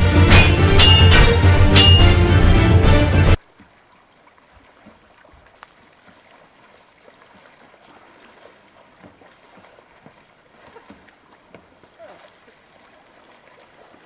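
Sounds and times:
kayak paddles splashing: 3.4 - 14.0.

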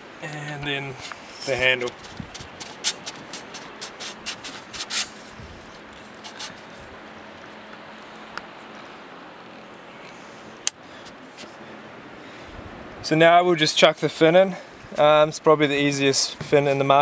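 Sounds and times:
paddle handle clicking and rubbing: 1.0 - 6.7.

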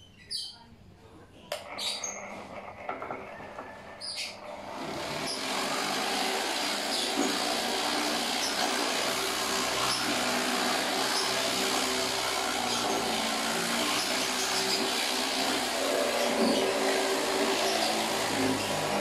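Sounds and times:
orbital sander running: 4.4 - 19.0.

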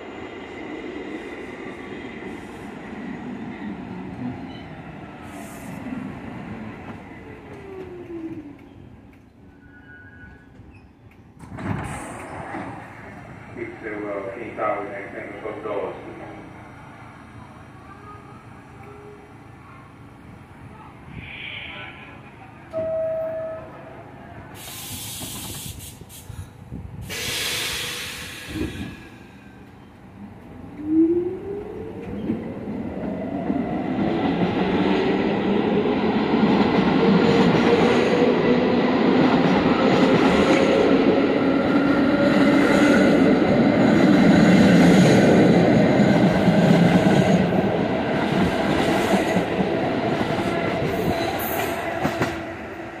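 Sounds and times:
subway train rumbling: 0.0 - 53.0
short hiss: 24.6 - 28.8.

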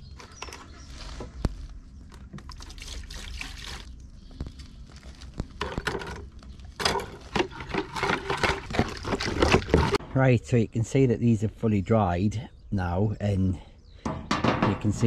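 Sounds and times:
liquid pouring into plastic bowl: 2.4 - 3.9.

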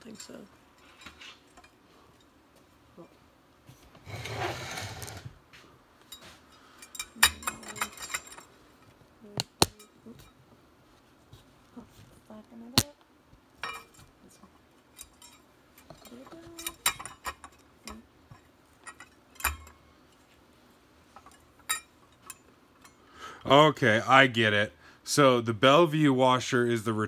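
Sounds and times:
metal scraping rub: 4.0 - 5.3.

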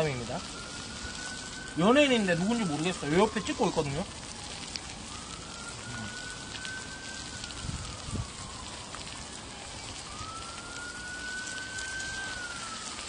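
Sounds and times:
meat sizzling on a grill pan: 0.0 - 7.8
distant siren wailing: 0.0 - 13.0.

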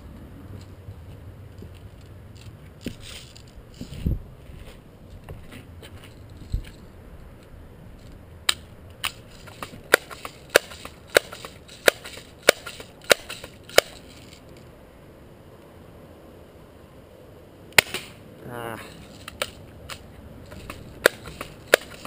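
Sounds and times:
bb gun clacks: 8.4 - 14.4, 19.1 - 22.0.

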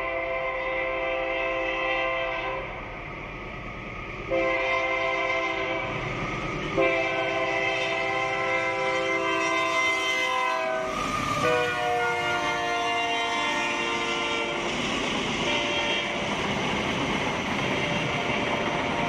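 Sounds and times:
locomotive air horn: 0.0 - 2.8, 4.3 - 6.0, 6.8 - 14.6, 15.4 - 16.2
rumble of freight train: 0.0 - 19.0.

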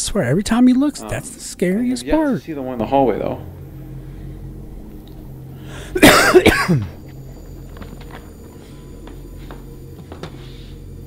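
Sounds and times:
faint background hum: 0.0 - 11.0
man coughing: 5.8 - 7.0.

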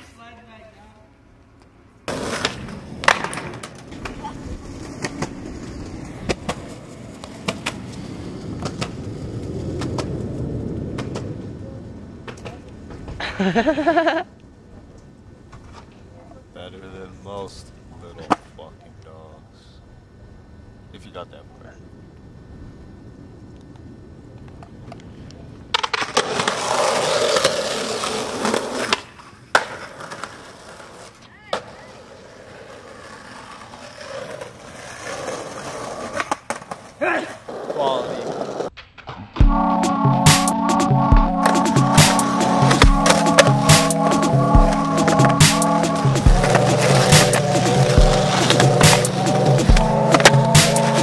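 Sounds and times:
skateboard wheels rolling on concrete: 0.0 - 51.0
skateboard clacks: 2.1 - 11.5, 12.2 - 13.2, 24.4 - 39.3, 41.3 - 51.0.

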